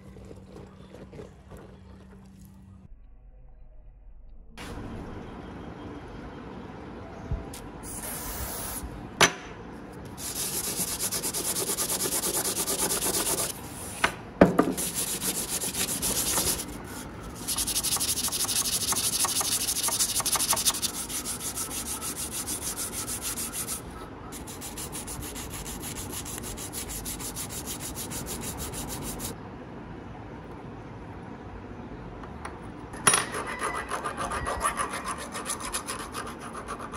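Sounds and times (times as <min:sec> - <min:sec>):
sandpaper rubbing on metal: 0:10.2 - 0:14.0, 0:14.7 - 0:29.4, 0:33.7 - 0:36.9.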